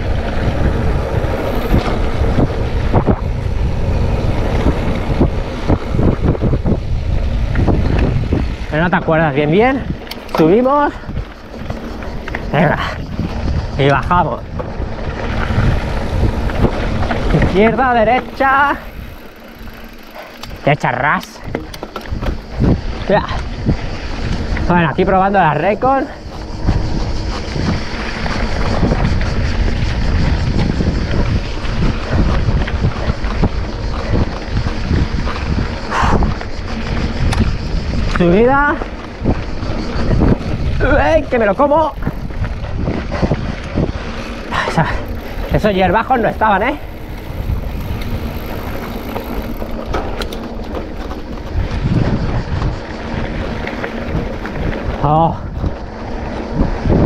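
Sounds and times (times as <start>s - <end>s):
bike knocks and rattles: 0.0s - 24.7s, 25.4s - 57.0s
tyres rolling on dirt trail: 0.0s - 57.0s
wind rushing over microphone: 0.0s - 57.0s.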